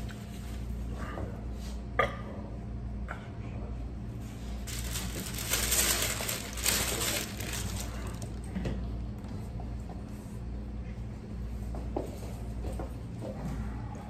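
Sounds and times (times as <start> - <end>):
low room hum: 0.0 - 14.0
paper napkin crumpling: 4.4 - 8.5.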